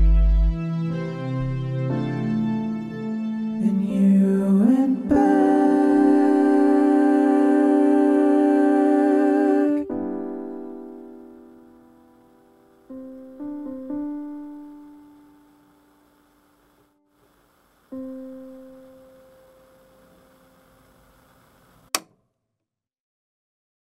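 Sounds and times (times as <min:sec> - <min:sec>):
sharp click: 0:21.9 - 0:22.2.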